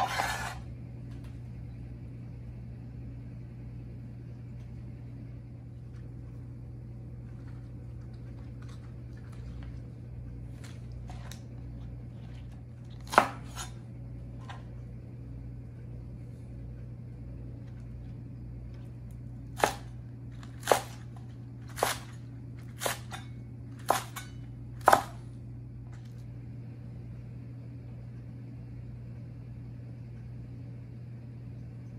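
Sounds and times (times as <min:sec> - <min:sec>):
cleaver chopping on cutting board: 0:13.0 - 0:13.7, 0:19.6 - 0:19.9, 0:20.6 - 0:21.0, 0:23.8 - 0:25.2.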